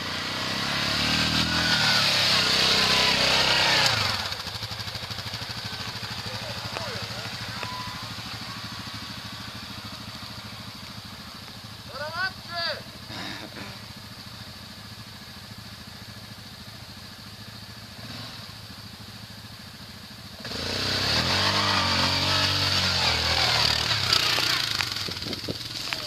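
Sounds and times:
quad bike engine revving: 0:00.0 - 0:10.7, 0:11.8 - 0:14.0, 0:17.8 - 0:18.8, 0:20.3 - 0:26.0
tyres scrabbling on dirt: 0:21.4 - 0:26.0.

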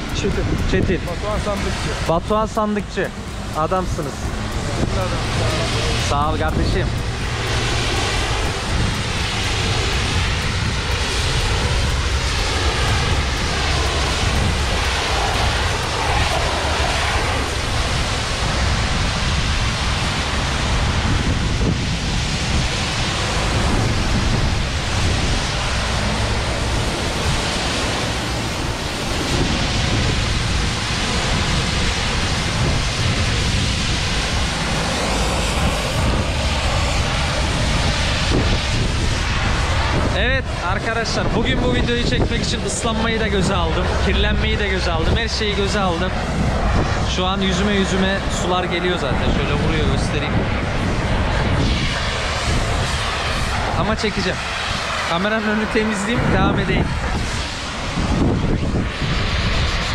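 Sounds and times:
pump running: 0:00.0 - 0:21.0, 0:21.9 - 0:38.2
pressure washer jet hissing: 0:00.0 - 0:38.3.

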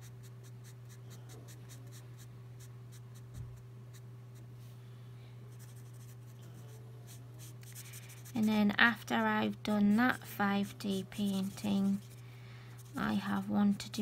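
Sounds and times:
steady low hum: 0:00.0 - 0:14.0
marker scratching on paper: 0:05.6 - 0:08.6, 0:10.1 - 0:12.2, 0:12.8 - 0:13.8.

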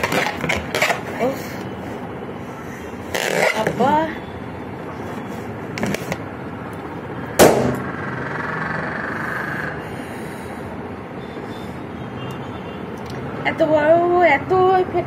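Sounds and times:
balloon bursting with loud pop: 0:07.4 - 0:07.9.

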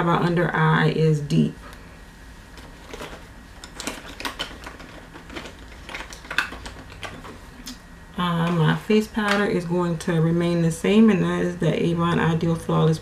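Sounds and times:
makeup cases clicking and clattering: 0:02.6 - 0:07.4.

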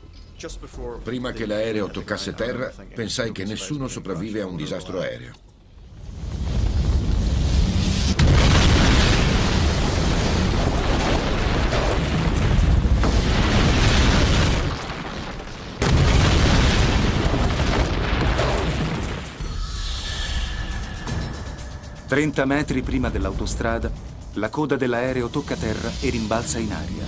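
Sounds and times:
sharp impact: 0:15.8 - 0:24.4.

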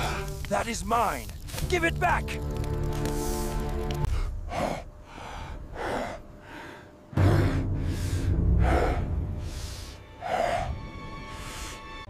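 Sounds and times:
low rumble: 0:07.0 - 0:10.9.

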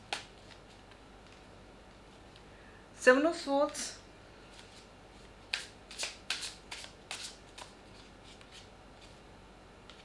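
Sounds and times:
cards being shuffled: 0:00.1 - 0:01.4, 0:04.5 - 0:09.2.

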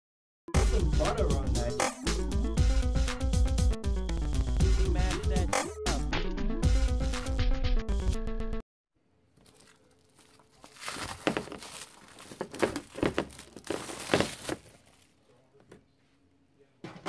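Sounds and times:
rustling and crinkling handling: 0:09.3 - 0:16.0
crackly scrapes: 0:09.4 - 0:15.2.

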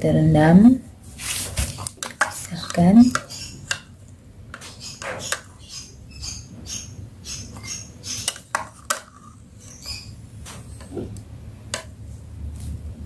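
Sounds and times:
spoon clinking on containers: 0:02.0 - 0:03.9, 0:07.6 - 0:10.1.

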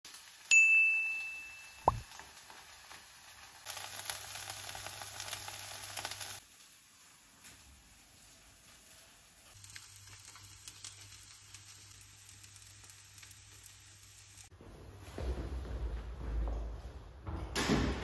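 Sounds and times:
food sizzling in frying pan: 0:00.1 - 0:14.5
bright ding: 0:00.5 - 0:02.0.

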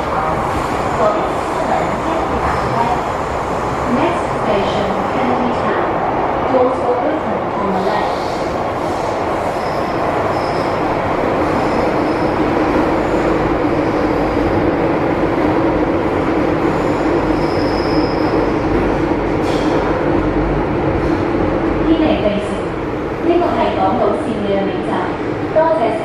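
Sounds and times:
train wheels roaring on rail: 0:00.0 - 0:26.0
high wheel squeals: 0:09.6 - 0:10.8, 0:16.8 - 0:18.4.

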